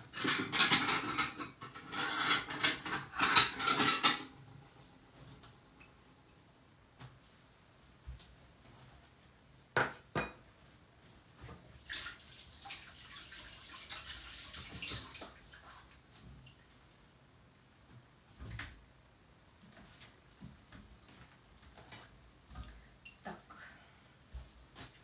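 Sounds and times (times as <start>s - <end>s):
dishes clattering: 0.0s - 4.4s, 9.8s - 10.4s.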